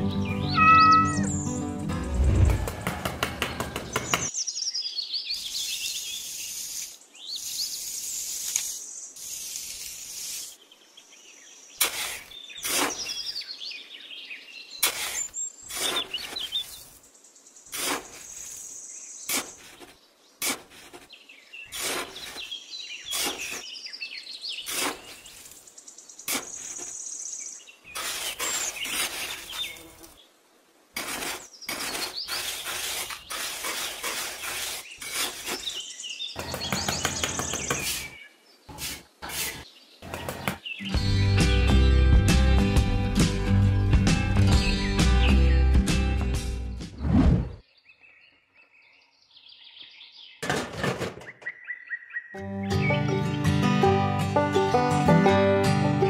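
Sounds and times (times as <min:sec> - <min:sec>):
birds chirping: 0:00.0 - 0:09.6, 0:10.3 - 0:30.4, 0:31.1 - 0:42.7, 0:44.3 - 0:50.4, 0:51.2 - 0:54.0
trowel scraping sand: 0:05.5 - 0:10.6, 0:11.8 - 0:13.4, 0:14.8 - 0:17.0, 0:17.7 - 0:23.8, 0:24.5 - 0:27.0, 0:27.9 - 0:30.1, 0:30.9 - 0:40.6.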